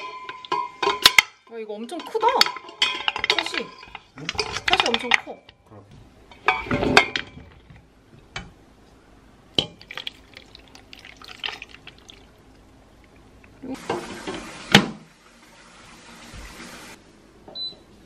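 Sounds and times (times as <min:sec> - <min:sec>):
metal pot clunk: 0:00.0 - 0:05.6, 0:06.3 - 0:08.6, 0:09.6 - 0:10.2
thick sauce pouring: 0:09.8 - 0:13.4.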